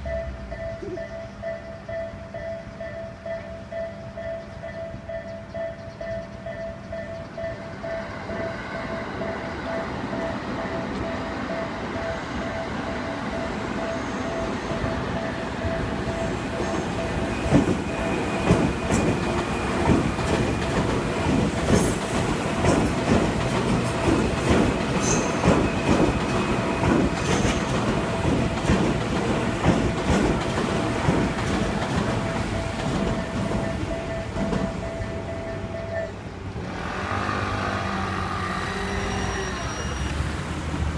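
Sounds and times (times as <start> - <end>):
railroad crossing bell ringing: 0.0 - 40.8
train wheels clacking on rails: 0.0 - 40.9
faint wheel squeal: 37.5 - 40.4.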